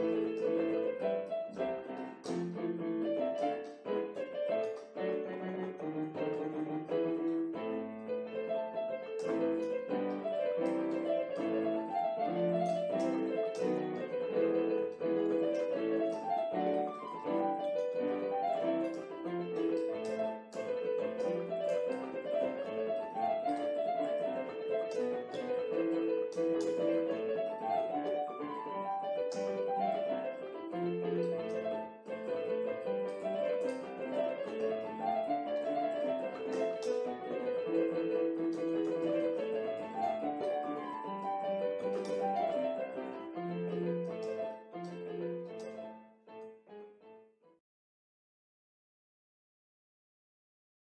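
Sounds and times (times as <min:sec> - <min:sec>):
piano melody: 0:00.0 - 0:47.2.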